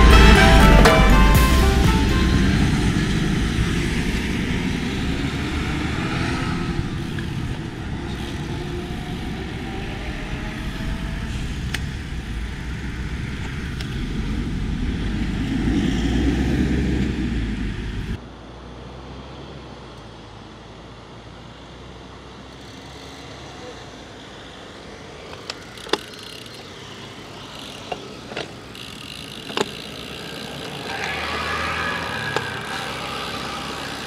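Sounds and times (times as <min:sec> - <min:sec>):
lorry driving past: 0:00.0 - 0:18.2
passing cars rumbling: 0:00.0 - 0:34.0.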